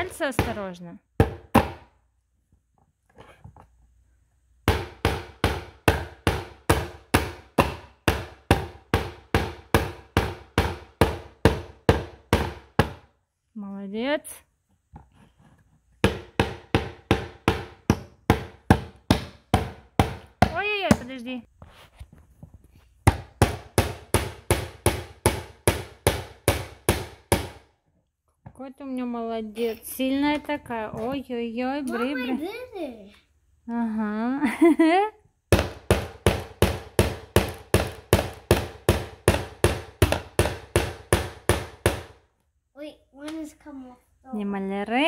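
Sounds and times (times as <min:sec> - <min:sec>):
hammer striking wooden board: 0:01.2 - 0:01.9, 0:04.6 - 0:13.1, 0:16.0 - 0:21.2, 0:23.0 - 0:27.7, 0:35.5 - 0:42.2.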